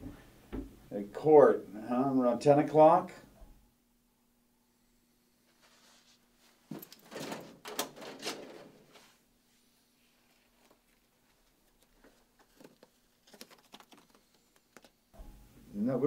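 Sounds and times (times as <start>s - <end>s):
metal drawer sliding open: 6.8s - 9.1s.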